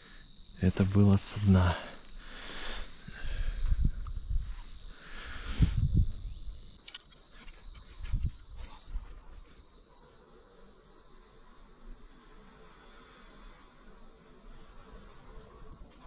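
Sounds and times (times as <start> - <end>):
sharp clicks: 6.8 - 7.8.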